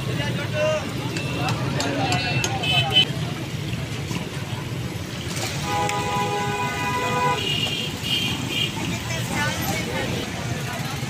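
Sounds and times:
busy street rumble: 0:00.0 - 0:11.0
vehicle horn: 0:05.6 - 0:08.7.

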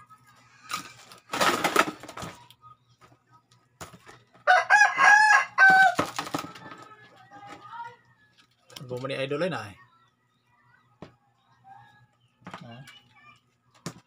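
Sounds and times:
rooster crowing: 0:04.4 - 0:06.1.

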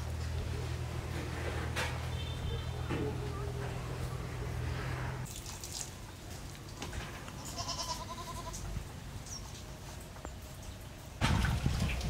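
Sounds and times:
faint quavering animal bleat: 0:07.4 - 0:08.6.

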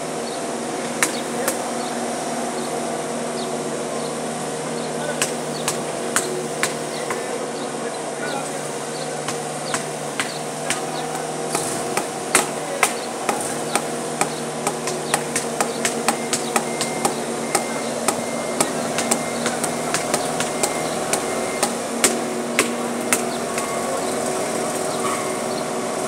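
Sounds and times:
construction machinery engines: 0:00.0 - 0:26.0
sharp hammer-like knocks: 0:05.2 - 0:07.3, 0:09.3 - 0:23.8.

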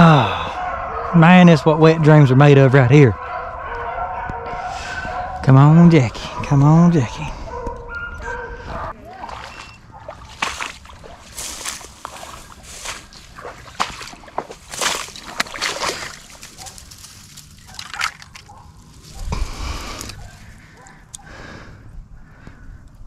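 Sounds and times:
footsteps wading through water: 0:08.8 - 0:19.1.

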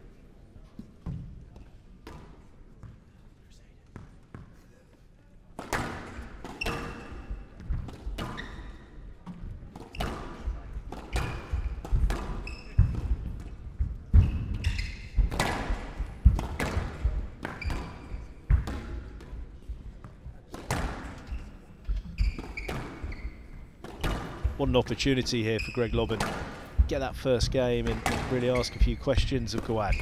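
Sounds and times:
shoes squeaking on court floor: 0:05.7 - 0:27.0, 0:27.6 - 0:30.0.

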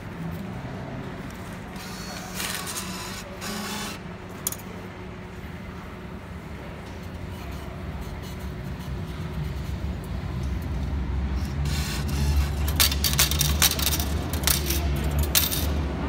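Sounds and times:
coins dropping into tray: 0:12.6 - 0:15.8.

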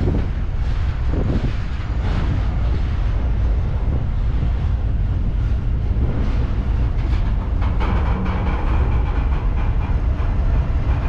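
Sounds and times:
freight train rumbling by: 0:00.0 - 0:11.0
wind buffeting microphone: 0:00.0 - 0:11.0.

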